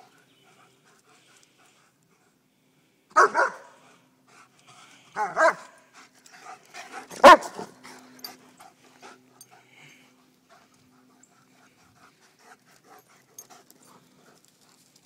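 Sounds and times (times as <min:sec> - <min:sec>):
dog panting: 0:00.0 - 0:02.4, 0:03.4 - 0:15.0
dogs barking: 0:03.1 - 0:03.8, 0:05.2 - 0:05.9, 0:06.6 - 0:08.0.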